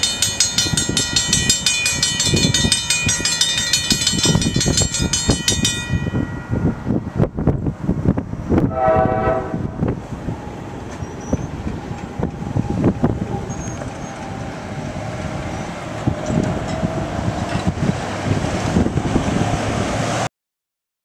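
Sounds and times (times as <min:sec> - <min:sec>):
train rumbling and knocking: 0:00.0 - 0:20.3
train horn blast: 0:08.6 - 0:09.9.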